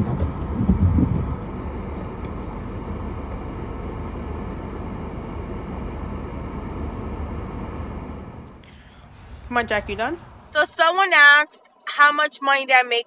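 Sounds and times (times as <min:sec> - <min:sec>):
car cabin rumble and hiss: 0:00.0 - 0:08.2.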